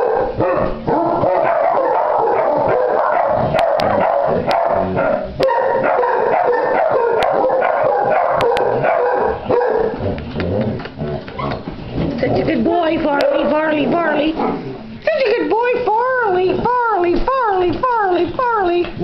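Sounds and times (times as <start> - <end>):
hound barking and baying: 0.0 - 11.7.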